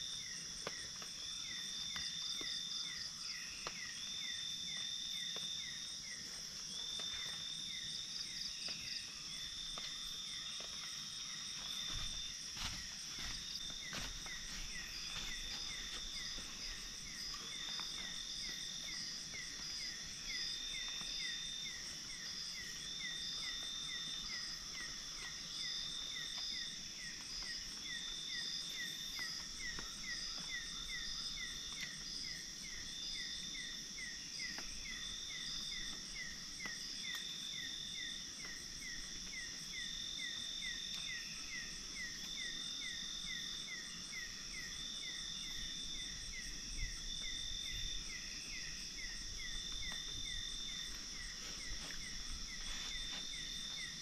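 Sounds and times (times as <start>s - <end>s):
insects trilling: 0.0s - 54.0s
longer insect call: 0.0s - 54.0s.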